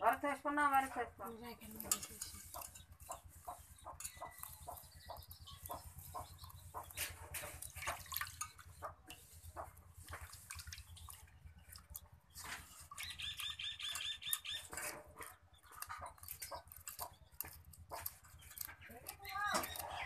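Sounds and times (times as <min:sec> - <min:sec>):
high chirping calls: 0:02.6 - 0:07.1, 0:13.0 - 0:14.8
hands sloshing fish in water: 0:07.0 - 0:13.6.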